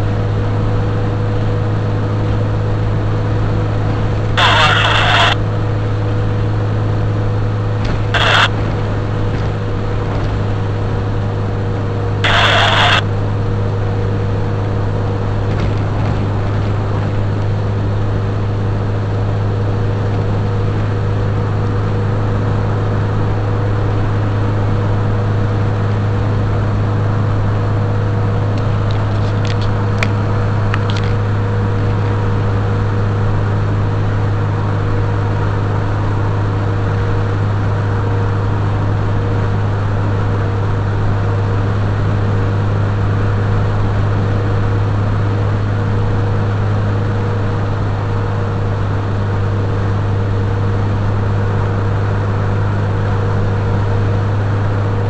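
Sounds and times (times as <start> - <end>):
car cabin engine and road hum: 0.0 - 55.0
hissy noise bursts: 4.4 - 5.4, 8.0 - 8.6, 12.2 - 13.0.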